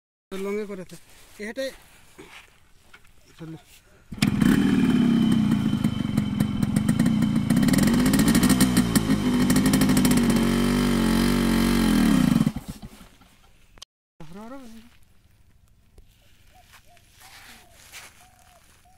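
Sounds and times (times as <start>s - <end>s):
two-stroke motorcycle engine: 4.1s - 13.6s.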